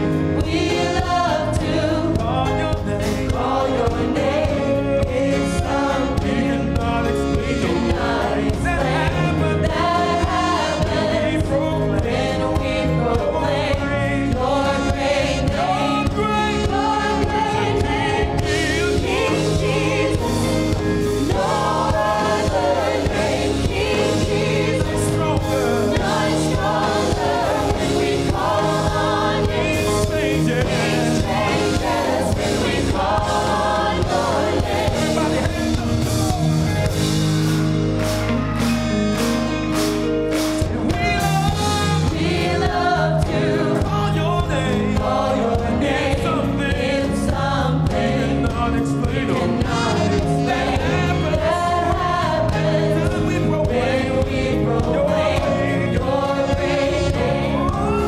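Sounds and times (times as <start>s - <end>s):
group singing gospel: 0.0s - 37.3s, 40.6s - 58.0s
drums: 0.0s - 58.0s
electric guitar: 14.5s - 46.6s.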